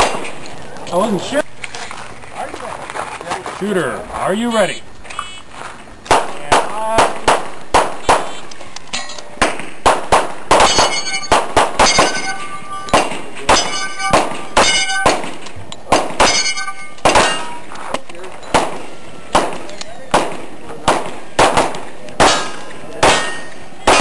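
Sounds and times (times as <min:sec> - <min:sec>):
handgun shots: 0:06.1 - 0:08.4, 0:12.9 - 0:17.6, 0:18.5 - 0:24.0
steel plates ringing: 0:10.6 - 0:15.2, 0:16.2 - 0:17.7, 0:22.3 - 0:24.0.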